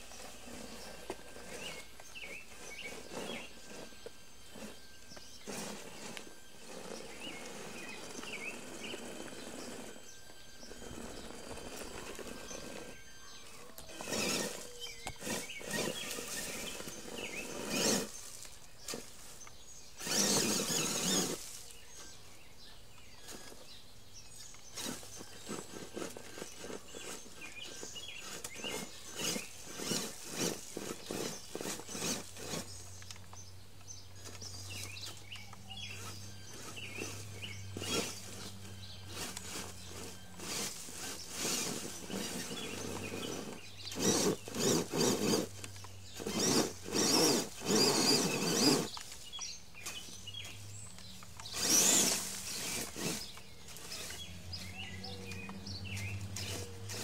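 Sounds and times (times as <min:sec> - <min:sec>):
electric motor whine bursts: 0:00.0 - 0:57.0.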